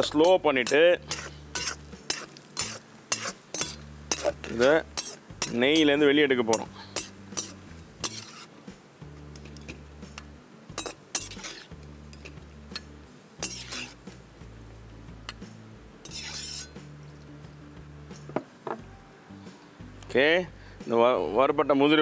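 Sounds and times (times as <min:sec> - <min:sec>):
ladle scooping in oil: 0:06.6 - 0:08.5, 0:10.8 - 0:14.1, 0:16.0 - 0:17.3.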